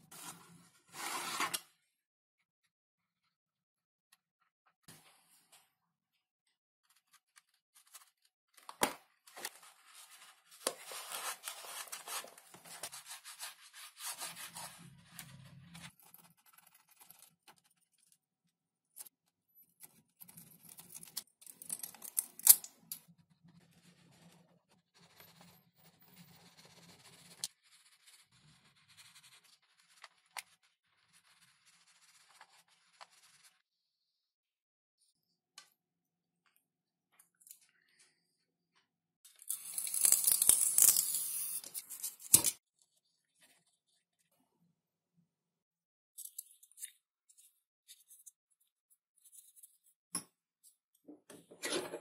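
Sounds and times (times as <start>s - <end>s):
scratching and rubbing on foam: 26.2s - 33.7s.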